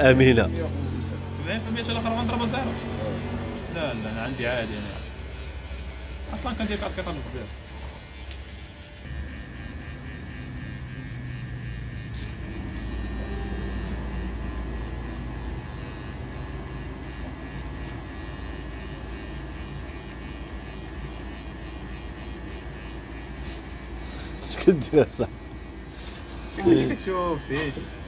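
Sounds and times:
electric hair clipper buzzing: 0.0s - 28.0s.

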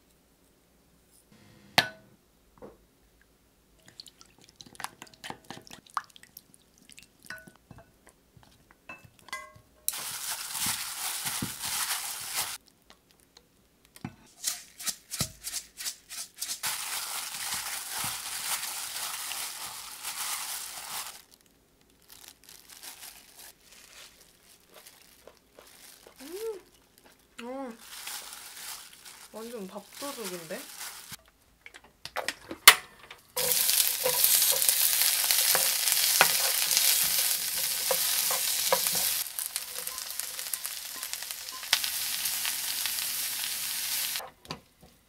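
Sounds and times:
spoon clinking glass bowl: 7.3s - 7.9s, 8.9s - 9.7s, 37.0s - 41.8s
plastic glove crinkling: 9.9s - 13.3s, 14.3s - 31.2s, 33.3s - 44.2s.

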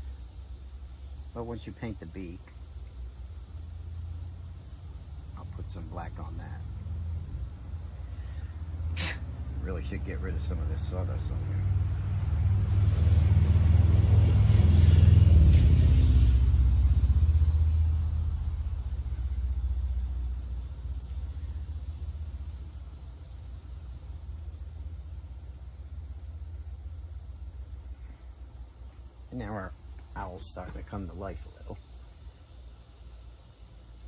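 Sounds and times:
deep rumble: 9.4s - 22.4s.

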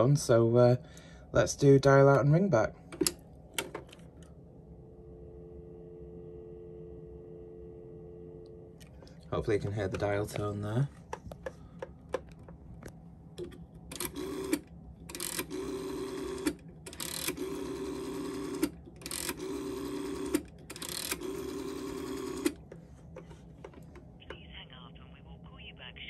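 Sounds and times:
rotary dial whirring: 13.4s - 24.1s.

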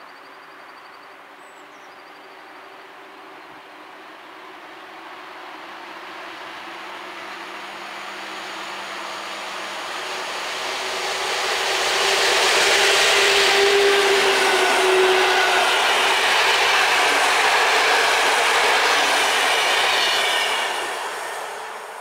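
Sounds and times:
train wheels on rails: 5.0s - 22.0s.

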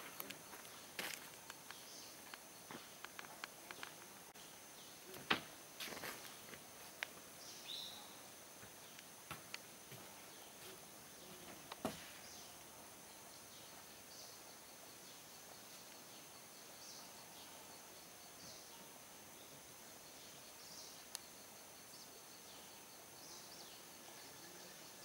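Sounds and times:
soft bird chirps: 7.4s - 9.1s.

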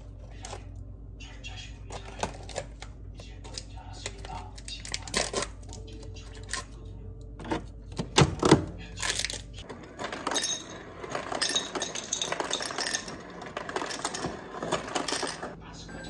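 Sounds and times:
coffee capsules clicking and rustling: 1.9s - 6.8s
ice cubes clattering into glass: 9.0s - 15.6s.

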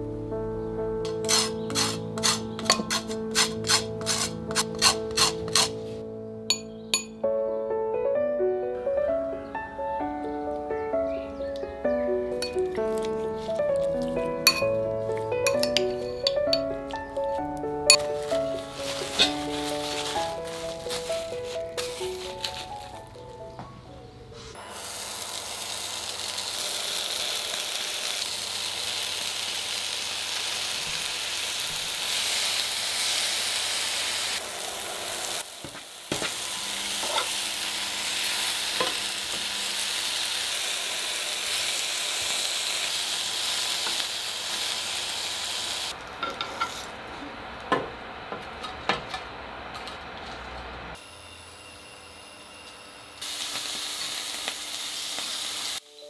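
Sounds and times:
metal tongs clinking: 1.1s - 5.7s, 6.5s - 7.2s, 12.4s - 21.0s
meat sizzling in a pan: 1.1s - 5.8s, 13.0s - 23.0s, 24.6s - 46.0s, 51.0s - 55.8s.

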